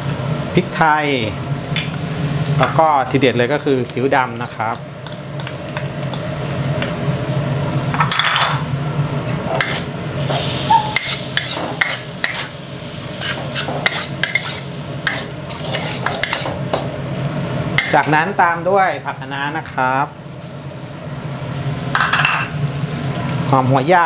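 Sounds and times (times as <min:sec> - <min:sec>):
metal spatula scraping a wok: 0:10.4 - 0:12.5, 0:13.2 - 0:16.6.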